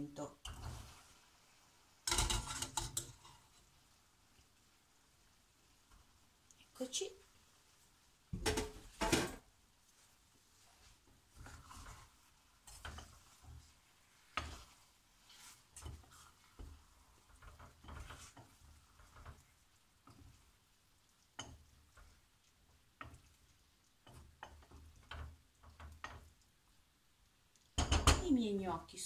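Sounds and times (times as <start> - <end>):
utensils scraping and knocking pan: 2.1 - 3.6, 11.3 - 20.3.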